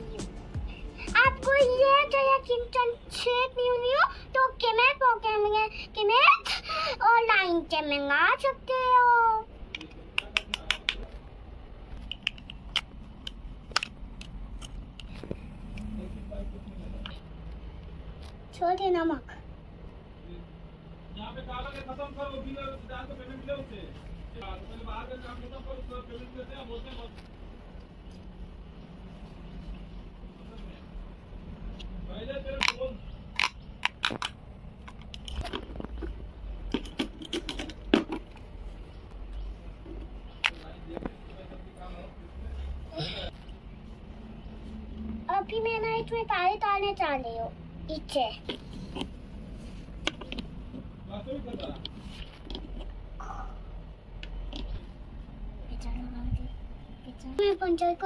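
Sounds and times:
plastic toys clicking and knocking: 12.0 - 15.1, 32.5 - 38.4.

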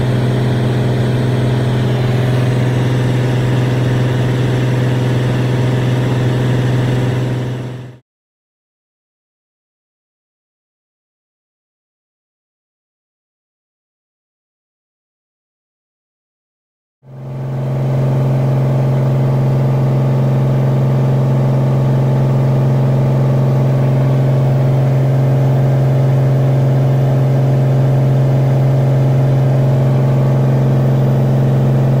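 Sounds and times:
propeller plane engine droning: 0.0 - 8.0, 17.1 - 32.0.

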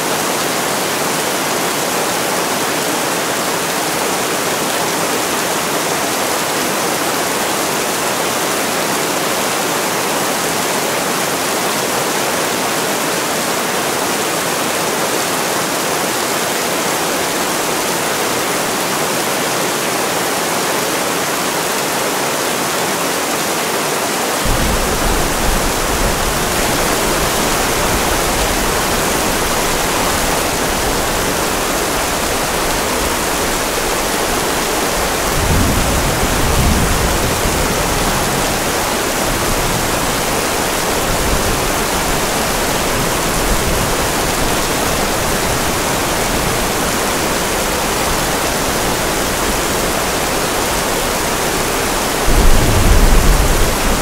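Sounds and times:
steady rain hiss: 0.0 - 54.0
low thunder rumble: 24.5 - 42.0, 48.2 - 54.0.

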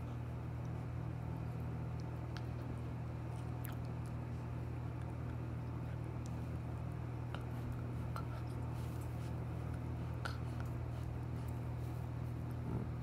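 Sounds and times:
low machine hum: 0.0 - 13.0
puppy mouthing clicks and smacks: 1.6 - 11.6.

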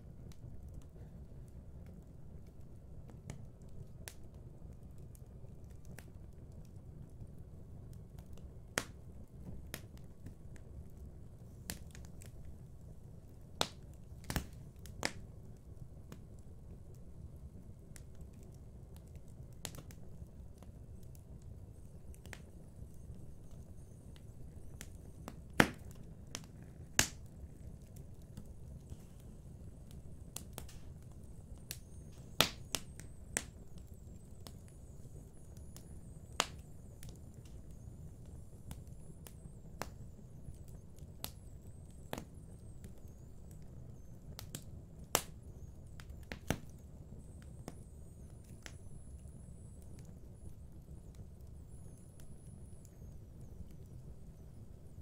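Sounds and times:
fire crackling: 0.0 - 55.0
loud fire pops: 24.7 - 27.7, 29.8 - 33.6, 35.6 - 37.6, 44.4 - 46.8.

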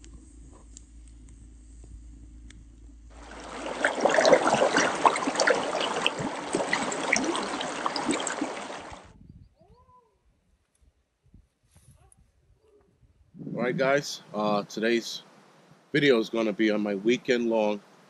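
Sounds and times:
stream rushing over rocks: 3.2 - 9.0.

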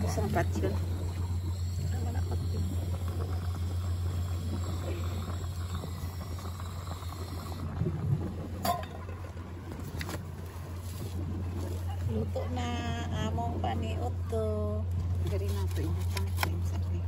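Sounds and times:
gas stove hum: 0.0 - 9.4
water boiling hard: 0.0 - 17.0.

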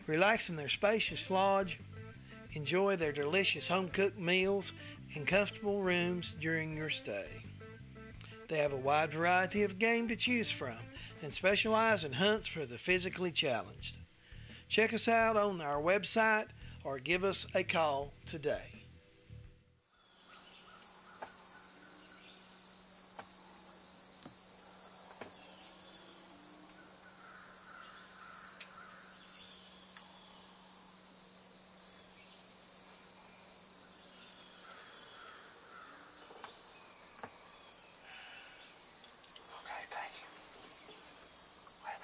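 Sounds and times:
high-pitched insect chorus: 19.8 - 42.0.

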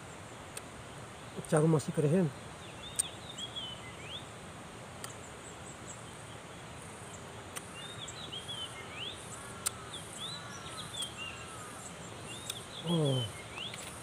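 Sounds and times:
small birds chirping: 0.0 - 14.0
sharp clicks: 5.0 - 5.2, 12.4 - 12.6.

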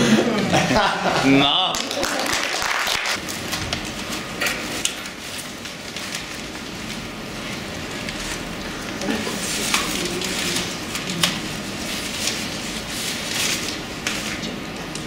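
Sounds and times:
paper rustling and crackling: 3.2 - 15.0.

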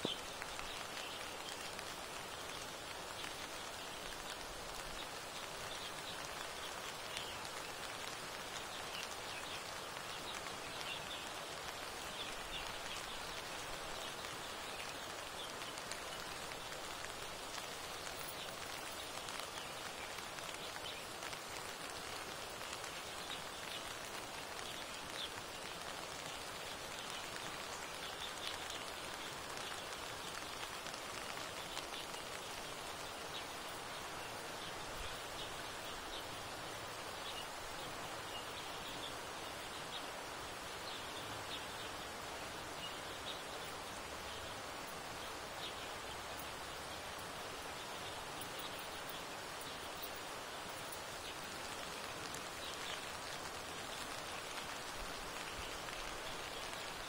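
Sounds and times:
raindrop ticks: 0.0 - 36.4
steady rain hiss: 0.0 - 57.0.

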